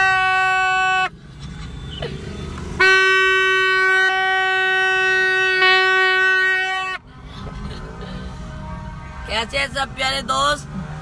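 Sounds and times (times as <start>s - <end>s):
plastic horn blasts: 0.0s - 1.1s, 2.8s - 7.0s.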